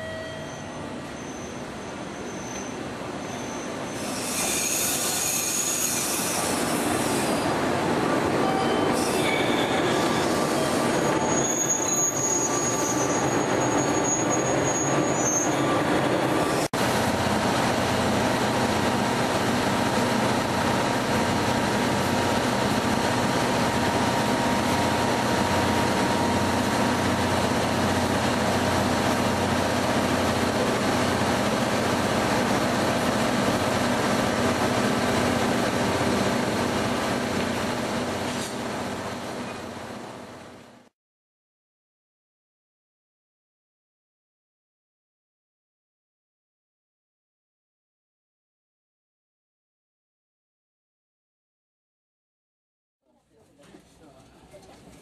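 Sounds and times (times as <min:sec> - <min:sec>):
wheel squeal: 0:00.0 - 0:07.5, 0:08.4 - 0:16.7
train wheels rumbling on rail: 0:00.4 - 0:40.8.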